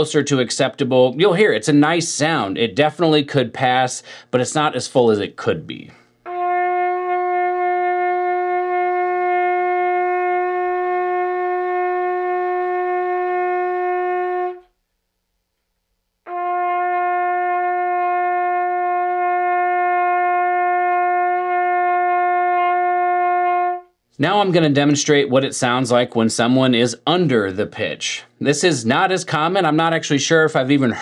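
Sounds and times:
trumpet holding long note: 0:06.2 - 0:14.8, 0:16.3 - 0:24.0.

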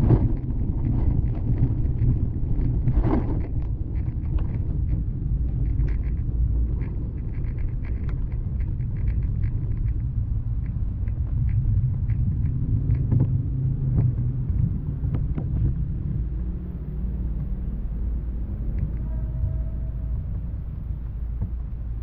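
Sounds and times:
light ticks and clicks: 0:00.0 - 0:15.8
bicycle rolling over wet pavement: 0:00.0 - 0:16.4.

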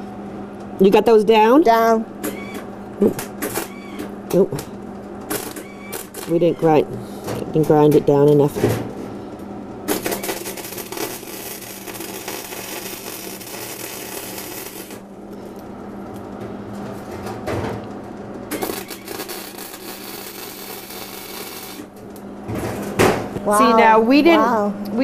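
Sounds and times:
electric arc welding: 0:05.3 - 0:06.4, 0:09.9 - 0:15.0, 0:18.5 - 0:21.9
arc spitting sparks: 0:09.9 - 0:15.0, 0:18.5 - 0:21.9.

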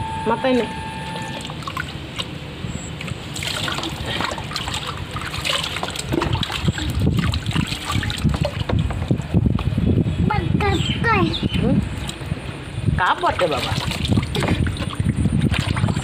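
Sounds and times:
water pouring and splashing into tub: 0:01.3 - 0:02.4, 0:03.0 - 0:09.2, 0:13.2 - 0:16.0.

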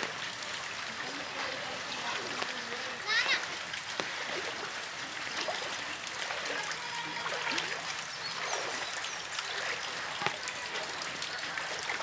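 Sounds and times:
heavy rain falling: 0:00.0 - 0:12.0
water dripping into floodwater: 0:00.0 - 0:12.0.

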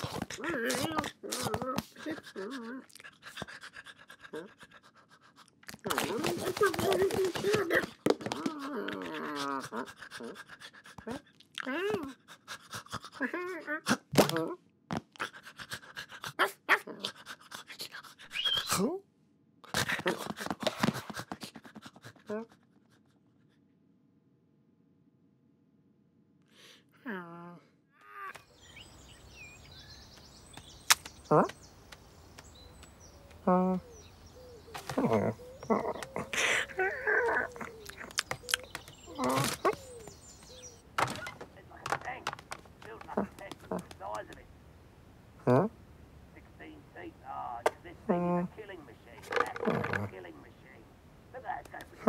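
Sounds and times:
cartoon scratchy scuffling: 0:00.0 - 0:02.6, 0:05.6 - 0:09.4, 0:19.7 - 0:22.4, 0:49.0 - 0:50.3
cartoon cat grunts and mews: 0:00.0 - 0:03.0.

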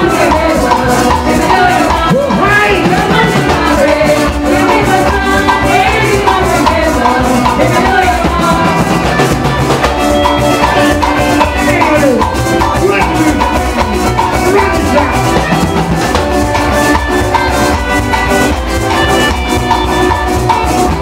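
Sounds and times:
several voices singing: 0:00.0 - 0:16.0
drums: 0:00.0 - 0:21.0
strummed guitars: 0:00.0 - 0:21.0.

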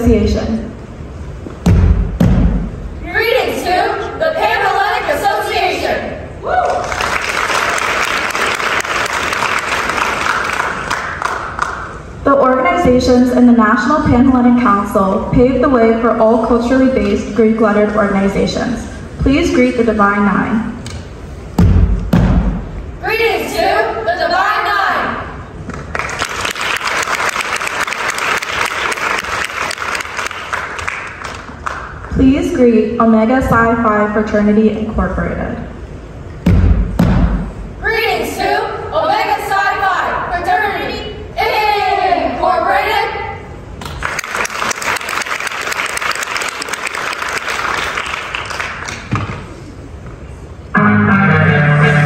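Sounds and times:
audience applauding: 0:06.6 - 0:11.9, 0:25.8 - 0:32.0, 0:43.8 - 0:49.1.

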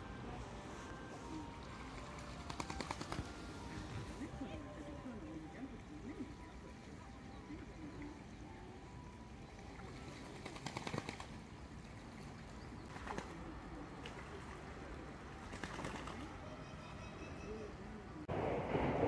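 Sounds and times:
ducks splashing and flapping: 0:01.6 - 0:04.6, 0:09.6 - 0:16.4.

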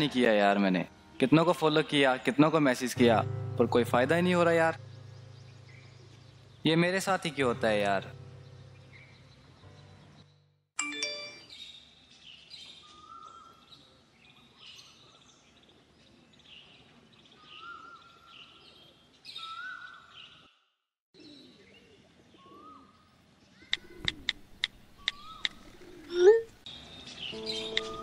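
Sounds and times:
birds chirping: 0:00.0 - 0:10.6, 0:11.4 - 0:20.6, 0:21.2 - 0:28.0
sharp clicks: 0:23.7 - 0:25.6, 0:27.7 - 0:28.0.

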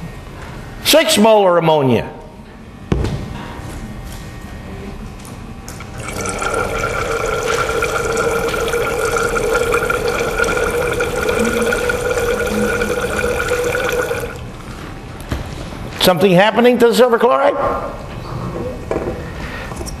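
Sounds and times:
liquid pouring into glass cylinder: 0:05.7 - 0:14.6.

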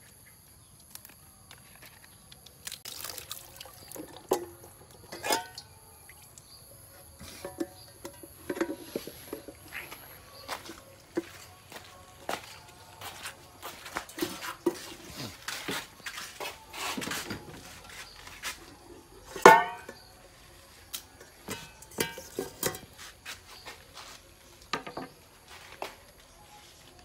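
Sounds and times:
knocks and rustles of kitchenware: 0:19.3 - 0:20.1, 0:21.2 - 0:23.0.

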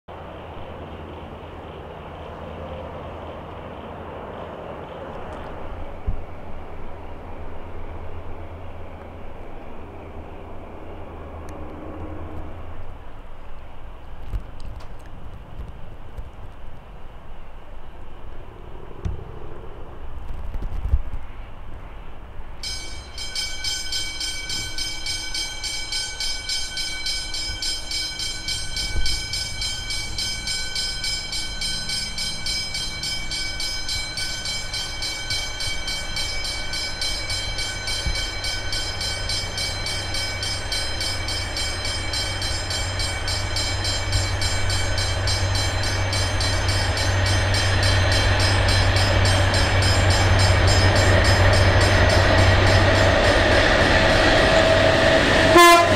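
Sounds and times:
diesel locomotive engine rumble: 0:00.1 - 0:55.9
steady high ringing: 0:22.6 - 0:55.9.

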